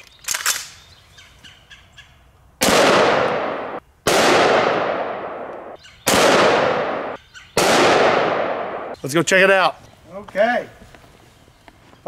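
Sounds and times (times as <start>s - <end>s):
rifle shots with echo: 2.6s - 9.0s.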